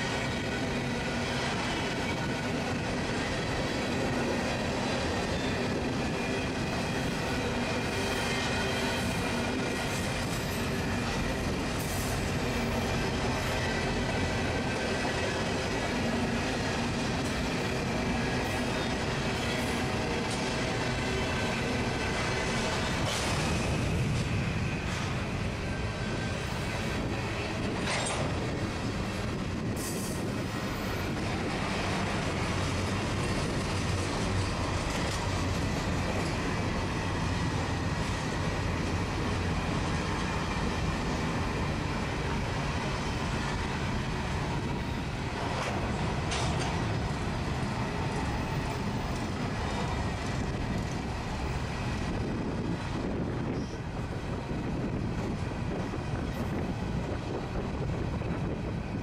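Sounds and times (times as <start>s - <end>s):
train wheels rumbling on rail: 0.0s - 59.0s
sharp clicks from wheels: 45.4s - 46.9s.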